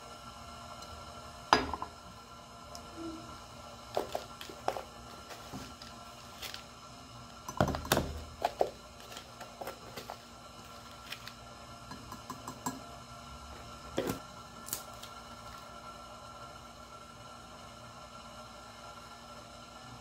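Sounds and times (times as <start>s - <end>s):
knocks on a stone countertop: 1.6s - 1.9s.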